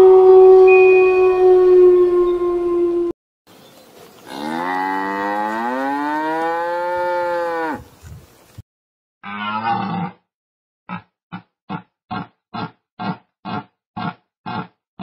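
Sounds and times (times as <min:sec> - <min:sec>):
cow mooing: 0:04.3 - 0:07.8.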